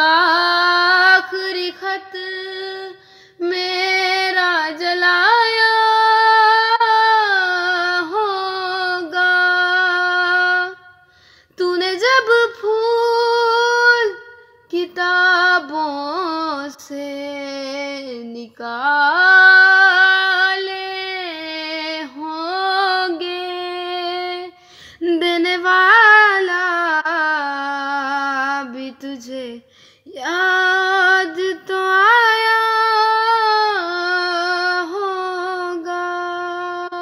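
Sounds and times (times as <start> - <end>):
woman singing unaccompanied: 0.0 - 11.0, 11.6 - 37.0
woman breathing: 3.0 - 3.4, 11.0 - 11.6, 24.6 - 25.0, 29.6 - 30.1.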